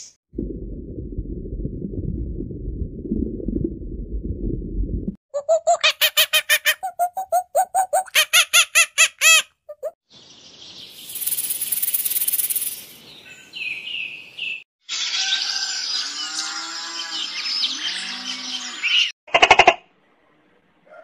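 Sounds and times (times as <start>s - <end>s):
chorus of chirps and calls: 5.4s - 19.2s.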